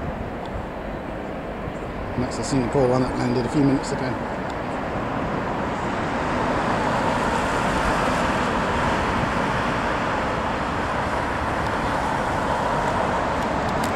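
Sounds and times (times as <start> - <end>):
road traffic noise: 0.0 - 13.9.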